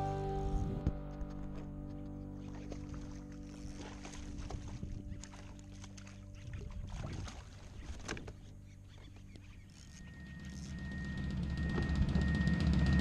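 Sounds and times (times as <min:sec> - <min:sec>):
background music: 0:00.0 - 0:07.5
water splashing around kayak: 0:02.4 - 0:10.1.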